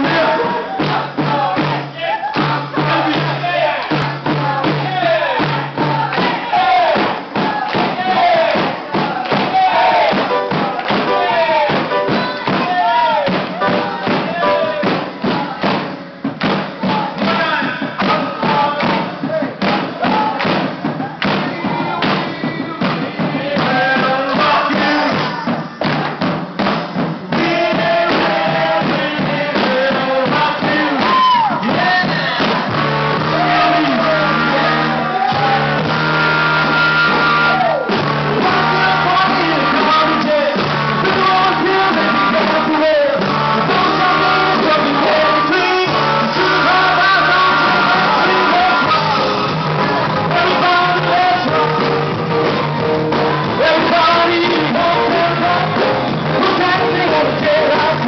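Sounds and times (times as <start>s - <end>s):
crowd whooping: 0.0s - 15.7s, 30.8s - 58.0s
percussion and hand claps: 0.0s - 58.0s
upbeat dance music with singing: 37.1s - 58.0s.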